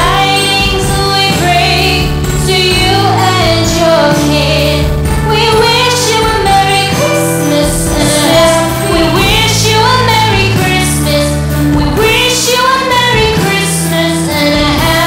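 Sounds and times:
christmas song with singing: 0.0 - 15.0.

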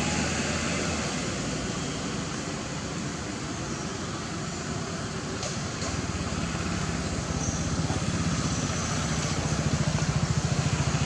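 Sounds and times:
engine running with low pulse: 4.4 - 11.0.

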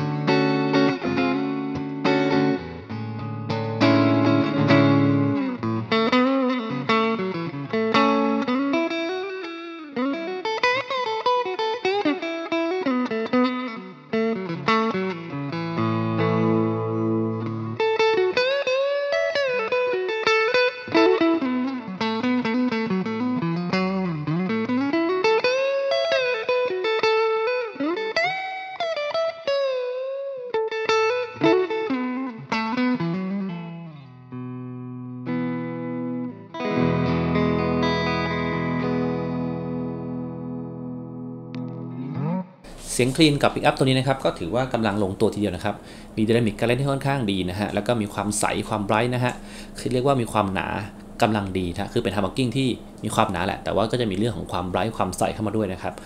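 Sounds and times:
sustained guitar chord: 0.0 - 5.9, 34.5 - 42.9, 47.7 - 54.9
clean electric guitar lead: 0.0 - 56.0.

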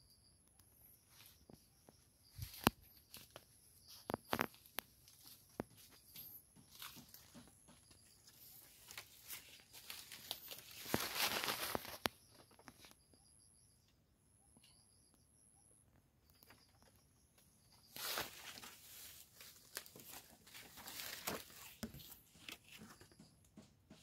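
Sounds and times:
footsteps on dry leaves: 8.2 - 12.0, 17.9 - 22.1.

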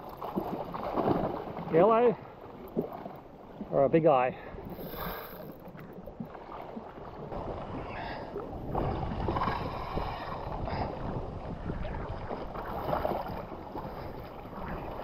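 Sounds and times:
wind buffeting microphone: 5.5 - 15.0.

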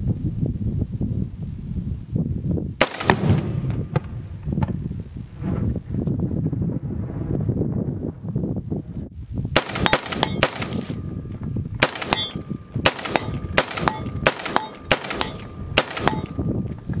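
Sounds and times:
rifle shots: 2.8 - 4.2, 9.6 - 11.2, 11.8 - 16.5.

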